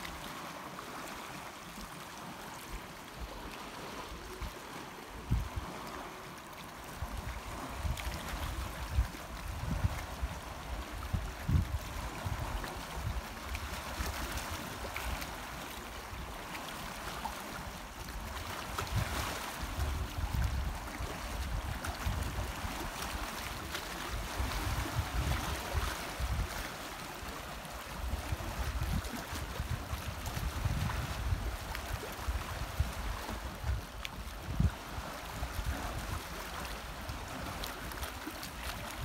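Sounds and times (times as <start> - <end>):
water lapping over rocks: 0.0 - 39.0
wind buffeting microphone: 5.2 - 5.8, 7.0 - 14.4, 18.4 - 23.4, 24.1 - 26.7, 27.9 - 36.7.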